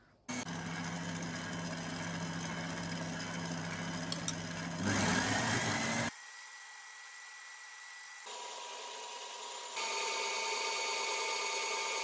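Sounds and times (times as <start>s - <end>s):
stand mixer whisking: 0.3s - 6.1s, 8.3s - 12.0s.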